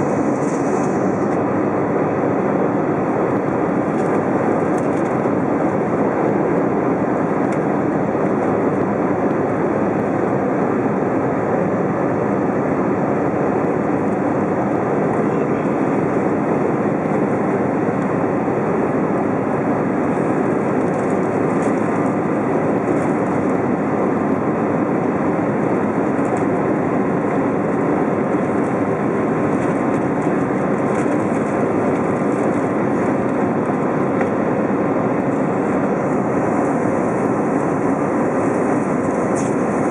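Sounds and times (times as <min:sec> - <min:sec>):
rushing air: 0:00.0 - 0:01.9
jet engines from inside cabin: 0:00.0 - 0:39.9.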